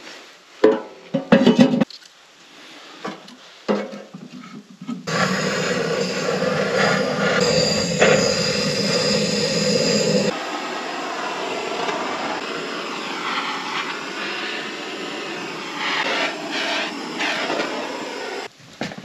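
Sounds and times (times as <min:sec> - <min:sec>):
steady rushing hiss: 0:02.1 - 0:18.7
aerosol spray bursts: 0:13.0 - 0:18.5.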